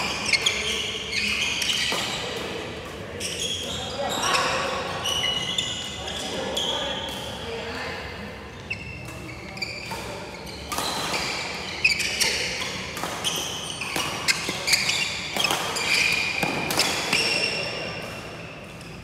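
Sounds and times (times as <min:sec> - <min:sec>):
shoes squeaking on wooden floor: 0:08.5 - 0:17.5
racket striking shuttlecock: 0:09.9 - 0:11.5, 0:12.3 - 0:17.3.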